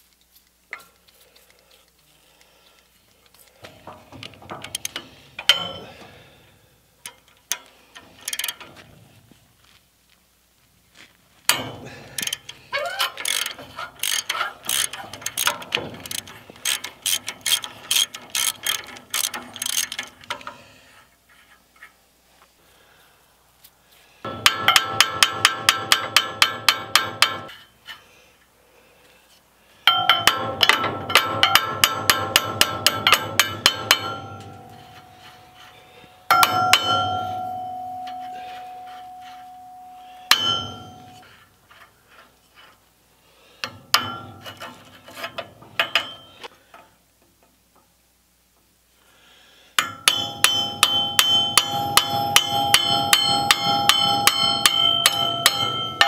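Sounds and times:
hammer striking steel punch: 0:11.5 - 0:11.9, 0:24.3 - 0:27.5, 0:29.9 - 0:35.0, 0:36.3 - 0:41.2, 0:49.8 - 0:56.0
hammer driving cold chisel: 0:29.9 - 0:41.3, 0:49.8 - 0:56.0.

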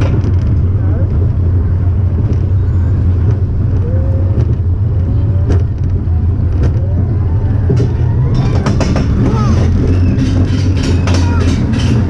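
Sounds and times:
roller coaster wheels rumbling on track: 0:00.0 - 0:12.0
sharp clacks: 0:07.7 - 0:12.0.

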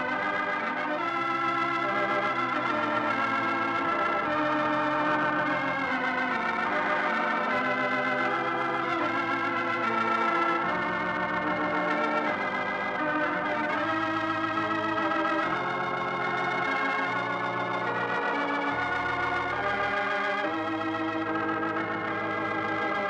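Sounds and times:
organ chords: 0:00.0 - 0:23.0.

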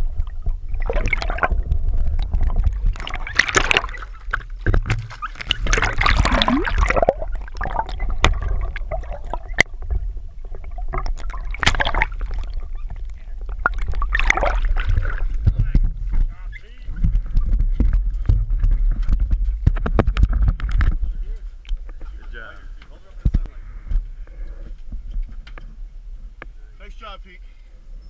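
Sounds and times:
splashing: 0:00.0 - 0:15.8
underwater water sloshing: 0:00.0 - 0:26.5
steady low rumble: 0:00.0 - 0:27.9.

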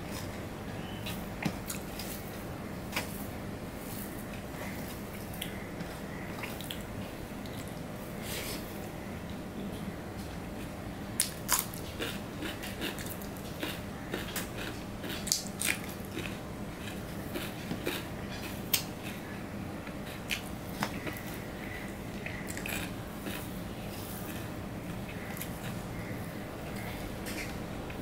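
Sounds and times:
man chewing: 0:10.6 - 0:19.3, 0:22.2 - 0:27.6.

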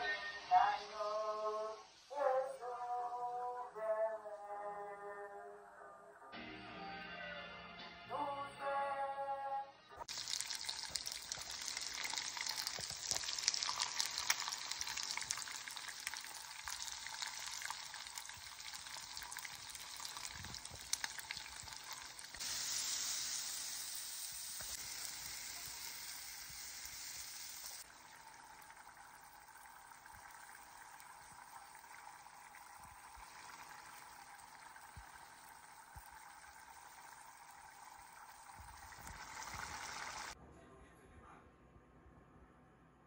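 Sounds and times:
music: 0:00.0 - 0:01.8, 0:02.4 - 0:10.0
beef sizzling in oil: 0:10.0 - 0:40.4.

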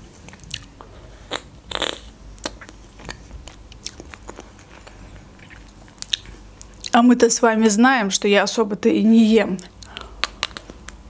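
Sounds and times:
chewing crunches and mouth clicks: 0:00.2 - 0:07.0, 0:09.6 - 0:11.0
bite cracking chocolate coating: 0:09.8 - 0:11.0.

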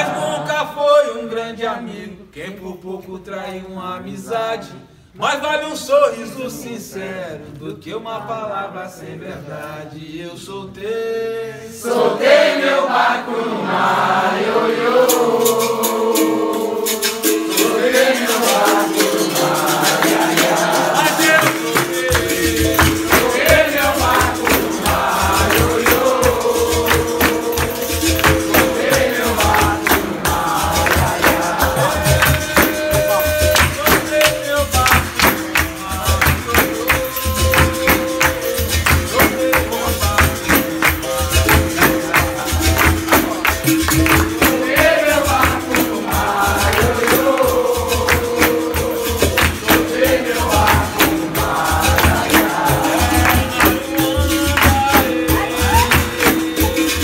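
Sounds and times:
voices singing: 0:00.0 - 0:02.3, 0:06.4 - 0:57.0
berimbaus playing: 0:14.5 - 0:57.0
rattling percussion: 0:14.7 - 0:57.0.

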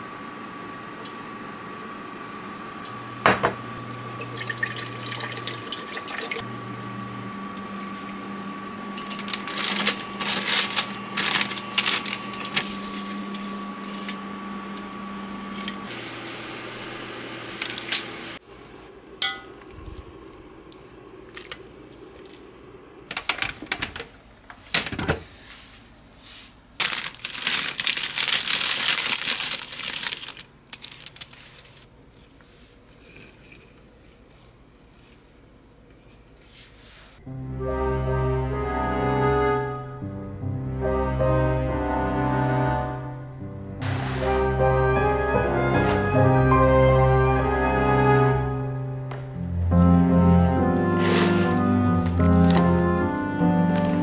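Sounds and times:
steady hum: 0:00.0 - 0:54.0
liquid pouring into pot: 0:04.0 - 0:06.4
scraping or rustling: 0:08.9 - 0:14.2, 0:51.0 - 0:52.9.

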